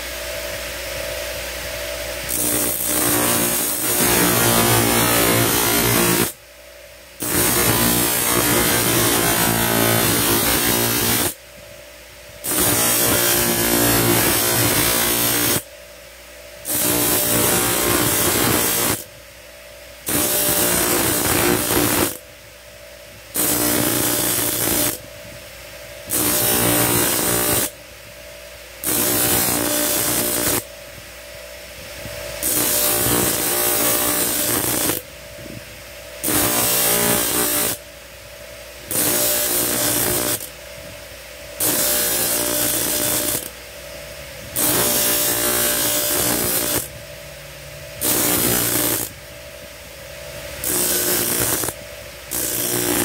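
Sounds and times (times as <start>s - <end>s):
grinding wheel grinding steel: 26.1s - 27.7s, 48.0s - 49.2s, 50.6s - 53.0s.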